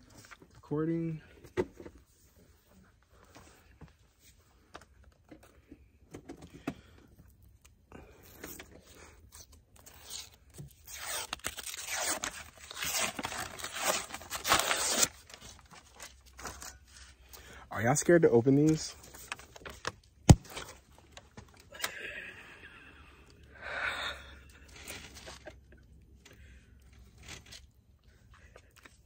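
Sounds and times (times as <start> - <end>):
paper wrapper tearing and crinkling: 8.3 - 16.8, 19.0 - 20.9, 24.6 - 25.6, 27.1 - 27.8.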